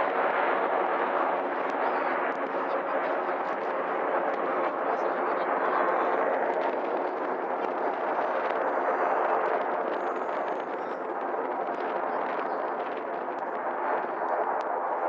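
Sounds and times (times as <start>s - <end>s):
jets roaring overhead: 0.0s - 15.0s.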